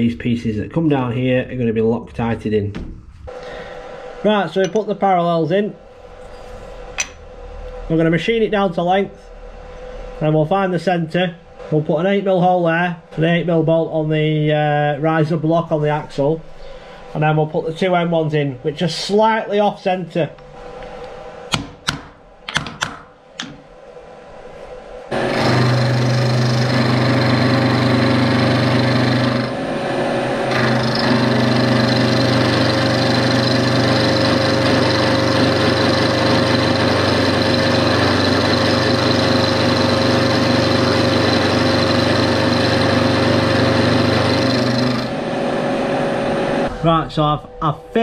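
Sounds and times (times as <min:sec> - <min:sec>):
milling machine humming and whining: 0:25.0 - 0:46.9.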